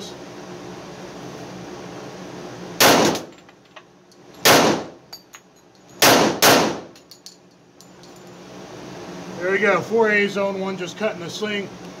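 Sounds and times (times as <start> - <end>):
echoing pistol shots: 2.8 - 3.3, 4.4 - 5.0, 6.0 - 6.9.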